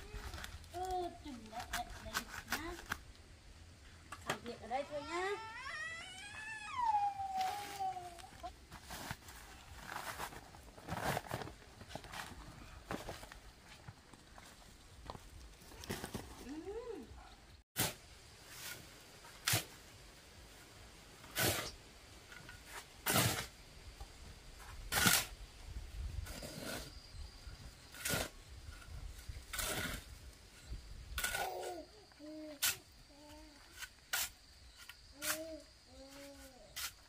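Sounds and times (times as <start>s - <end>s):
shovel scraping sand and cement: 0.1s - 3.0s, 17.8s - 19.8s, 21.2s - 23.6s, 24.6s - 25.4s, 26.2s - 27.0s, 27.8s - 37.0s.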